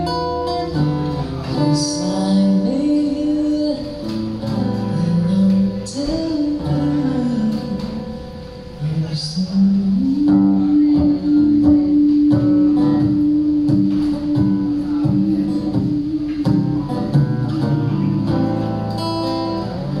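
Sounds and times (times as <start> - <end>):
acoustic guitar picked and strummed: 0.0 - 20.0
man singing long note: 8.8 - 17.0.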